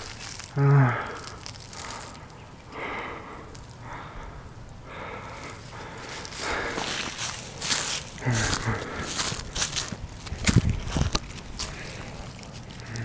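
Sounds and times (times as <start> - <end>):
footsteps on dry leaves and twigs: 0.0 - 4.1, 5.0 - 13.0.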